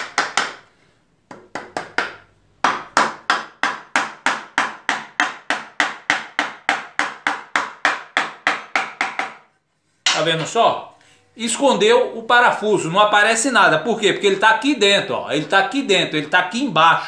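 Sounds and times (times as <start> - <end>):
hammer tapping wood: 0.0 - 0.7, 1.3 - 9.5.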